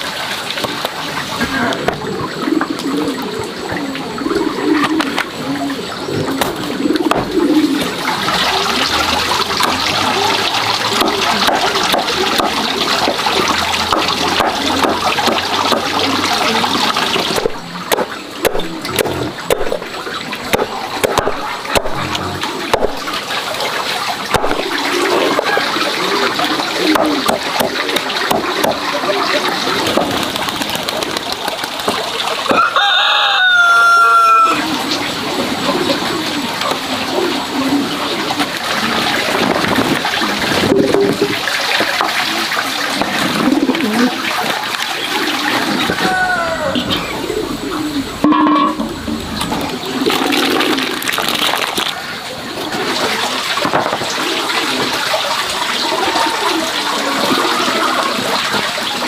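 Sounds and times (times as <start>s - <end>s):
steady noisy background: 0.0s - 32.7s, 34.0s - 59.0s
rooster crowing: 32.5s - 34.8s, 45.9s - 47.3s.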